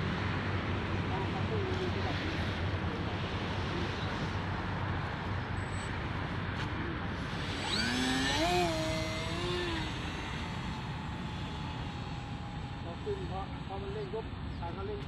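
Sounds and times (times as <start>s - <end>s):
electric motor whine: 7.1s - 13.9s.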